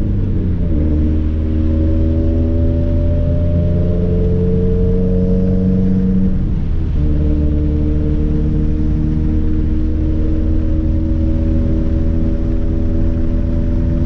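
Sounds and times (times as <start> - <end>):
car engine accelerating from cabin: 0.0 - 14.0.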